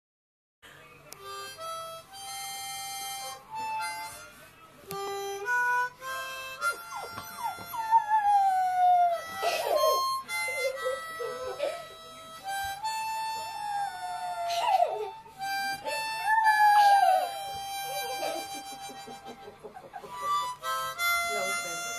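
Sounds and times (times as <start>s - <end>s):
harmonica playing a tune: 0.8s - 21.9s
puppy howling: 6.6s - 11.7s, 13.5s - 18.6s.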